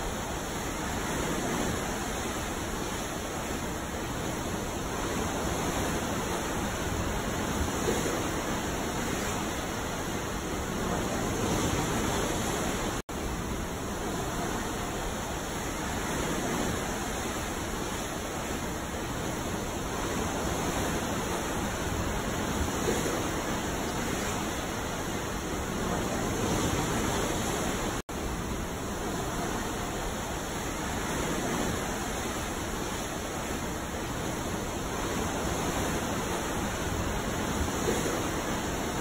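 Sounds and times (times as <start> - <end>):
ocean waves: 0.0 - 39.0.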